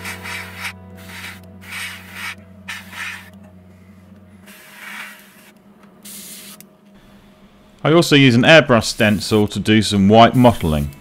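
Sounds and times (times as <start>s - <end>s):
airbrush spraying in hissing bursts: 0.0s - 3.3s, 4.5s - 6.6s, 8.9s - 9.5s.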